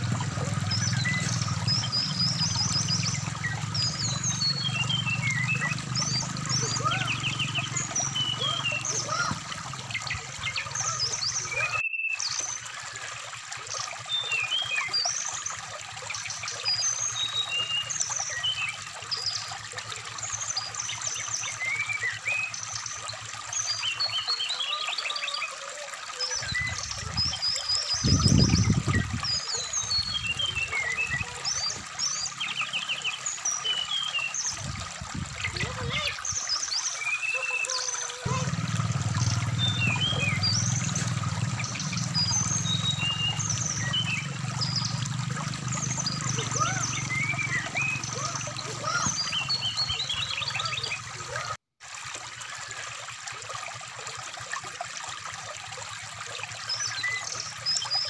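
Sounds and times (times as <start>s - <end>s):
low rumble of water: 0.0s - 58.0s
running water: 0.0s - 58.0s
bird whistling and twittering: 0.6s - 13.0s, 45.7s - 51.1s.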